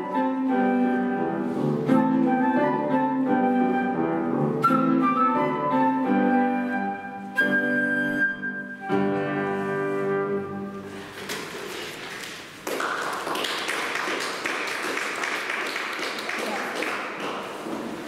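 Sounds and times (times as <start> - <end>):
flute playing: 0.0 - 11.0
piano accompaniment: 0.0 - 11.3.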